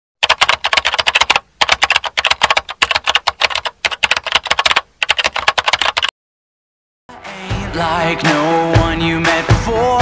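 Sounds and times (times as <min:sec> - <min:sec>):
rapid keyboard typing: 0:00.2 - 0:06.1.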